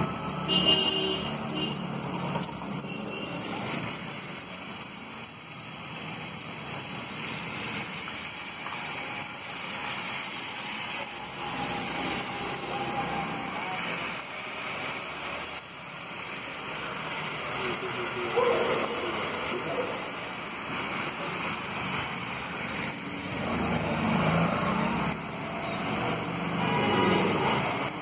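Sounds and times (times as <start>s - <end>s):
vegetables sizzling on a griddle: 0.0s - 28.0s.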